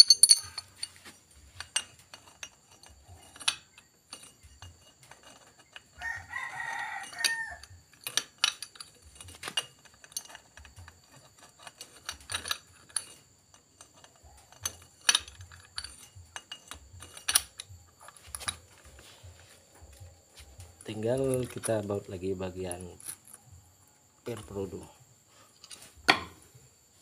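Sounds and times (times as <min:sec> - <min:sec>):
metallic clutch clicks: 0:00.0 - 0:06.3, 0:07.0 - 0:19.0
rooster crowing: 0:06.0 - 0:07.8.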